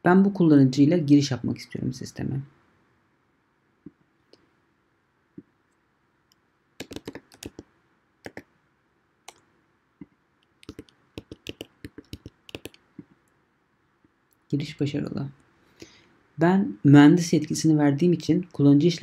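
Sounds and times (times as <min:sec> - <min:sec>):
computer keyboard typing: 0:06.8 - 0:07.6, 0:08.2 - 0:08.4, 0:10.6 - 0:13.1.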